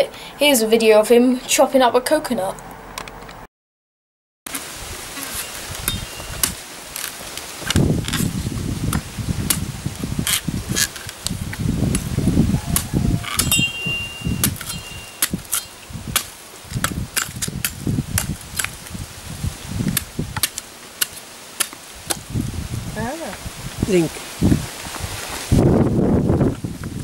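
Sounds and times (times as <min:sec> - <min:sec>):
machete chopping coconut: 0:05.2 - 0:08.3, 0:08.9 - 0:09.6, 0:12.8 - 0:18.8, 0:19.9 - 0:22.2.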